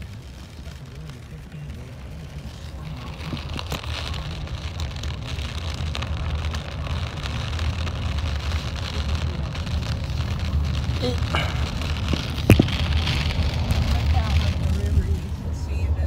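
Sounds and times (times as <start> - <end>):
rain hitting car windows and roof: 0.0 - 15.9
car rumble on road: 0.0 - 16.0.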